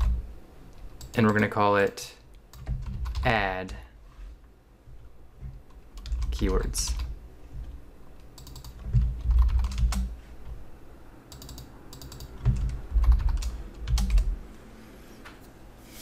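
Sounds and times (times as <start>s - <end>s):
keyboard keystroke clicks: 8.2s - 10.1s, 11.3s - 14.3s.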